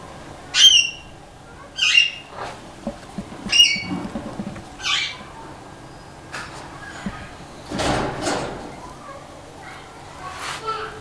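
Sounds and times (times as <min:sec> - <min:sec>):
bird squawking: 0:00.5 - 0:02.3, 0:03.4 - 0:04.0, 0:04.8 - 0:05.3.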